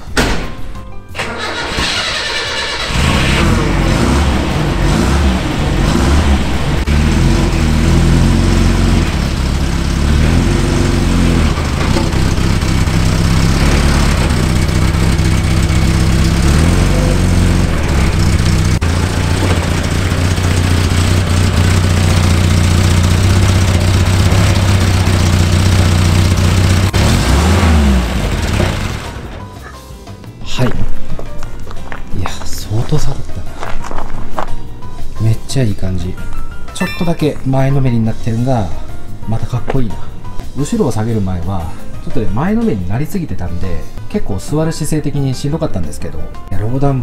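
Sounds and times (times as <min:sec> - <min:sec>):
pickup truck engine running: 0:01.4 - 0:29.8.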